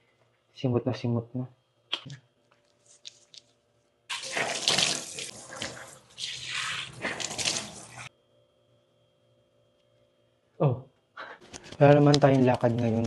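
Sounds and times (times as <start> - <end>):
tap water running into sink: 4.1 - 8.1
water splashing into hands: 4.1 - 8.1.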